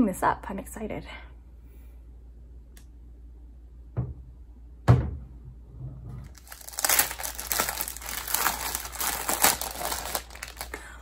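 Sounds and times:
plastic bag crinkling: 6.2s - 11.0s.

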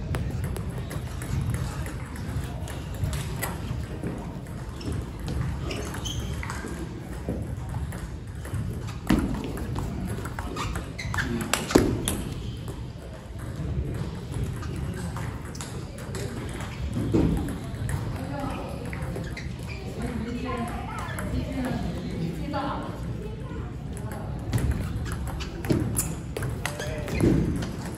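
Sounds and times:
table tennis rally: 0.0s - 27.9s
murmur of voices: 9.2s - 27.9s.

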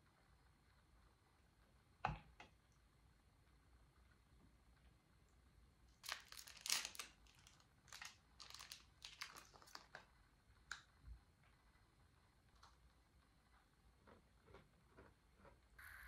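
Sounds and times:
plastic wrapper crinkling: 6.0s - 10.1s.

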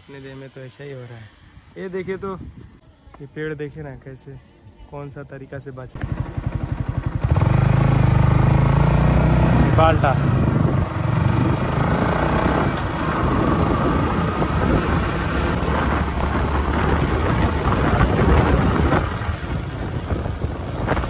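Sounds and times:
wind rumble on microphone: 1.4s - 3.3s, 6.0s - 21.0s
motorcycle engine: 6.0s - 21.0s.

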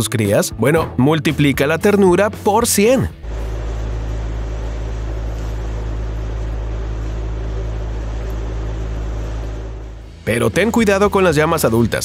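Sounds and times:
low mechanical hum: 3.2s - 12.0s.

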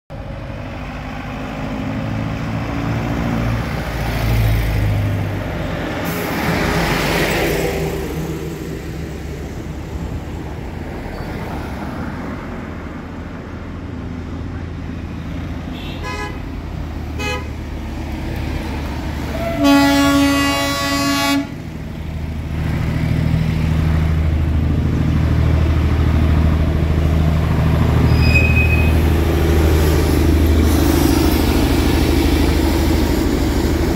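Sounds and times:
road traffic: 0.1s - 33.9s
long horn blast: 15.7s - 16.5s, 17.2s - 17.6s, 19.3s - 21.6s
short horn toots: 19.3s - 21.5s.

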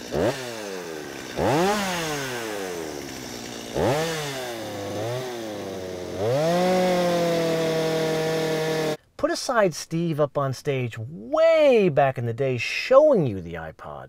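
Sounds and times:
chainsaw revving: 0.0s - 9.0s.

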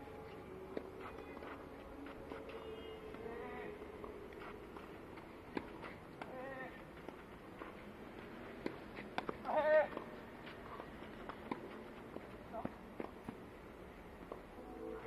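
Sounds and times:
tennis ball struck and bouncing: 8.6s - 10.1s, 11.2s - 13.4s.

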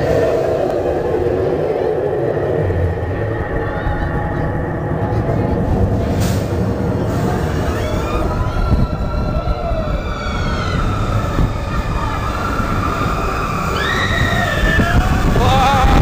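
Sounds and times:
roller coaster rumbling on track: 0.0s - 16.0s
people screaming: 7.0s - 16.0s.

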